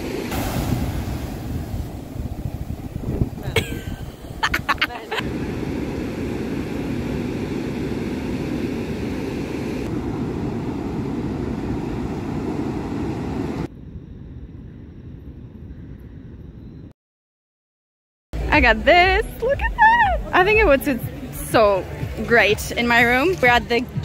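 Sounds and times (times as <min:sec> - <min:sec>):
ocean surf breaking: 0:00.0 - 0:13.7
wind rumbling on microphone: 0:00.0 - 0:16.9.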